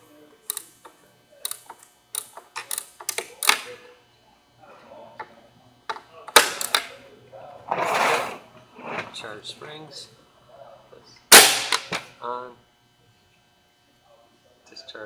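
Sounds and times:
circuit breaker clicks and clacks: 0.5s - 3.7s, 5.9s - 7.0s, 11.3s - 12.1s.

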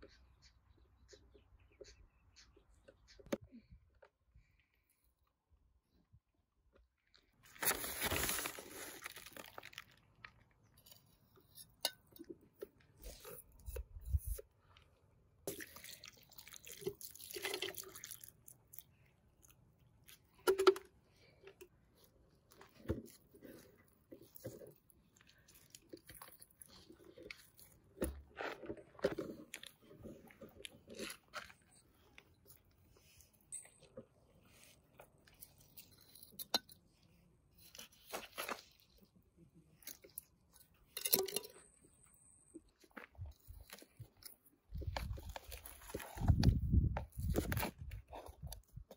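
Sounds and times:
food crunching: 22.5s - 32.7s.

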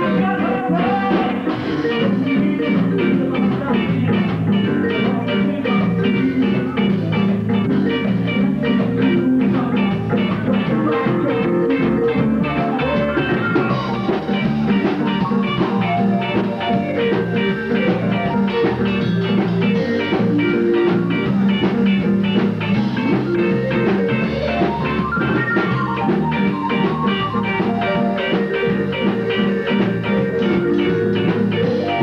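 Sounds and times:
electric guitar: 0.0s - 32.0s
keyboard: 0.0s - 32.0s
steady drum beat: 0.0s - 32.0s.

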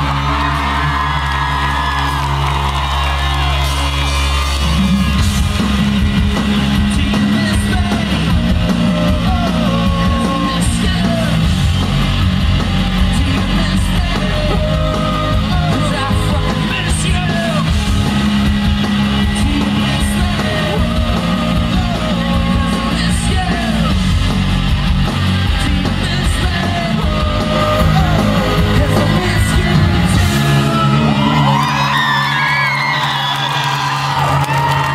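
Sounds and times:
crowd shouting and whooping: 0.0s - 34.9s
live rock band playing: 0.0s - 34.9s
person singing: 6.8s - 11.5s, 13.0s - 17.8s, 19.1s - 24.0s, 25.5s - 31.8s.

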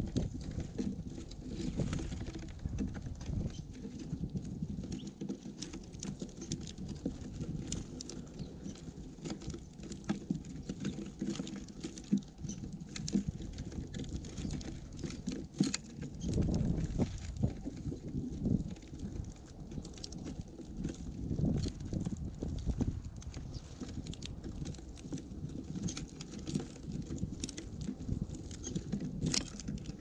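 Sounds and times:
birds pecking on feeder: 0.0s - 30.0s.

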